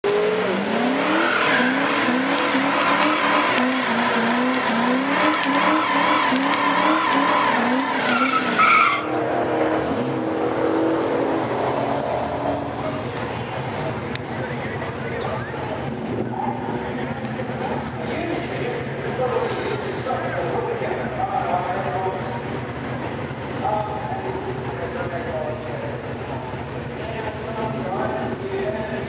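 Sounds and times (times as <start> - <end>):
car engine revving: 0.0 - 29.0
tyres spinning: 0.5 - 10.7.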